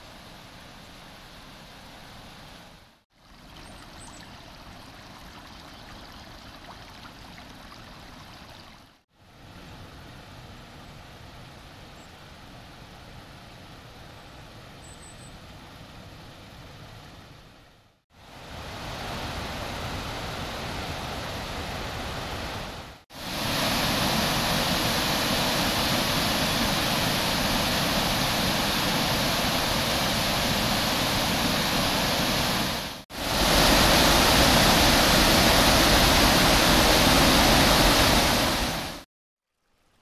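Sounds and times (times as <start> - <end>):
water rushing from waterfall: 18.3 - 39.1.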